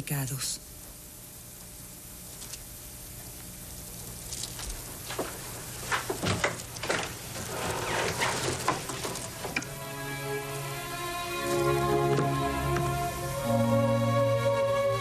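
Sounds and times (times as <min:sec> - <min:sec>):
low steady background: 0:00.0 - 0:15.0
rustling: 0:02.2 - 0:10.0.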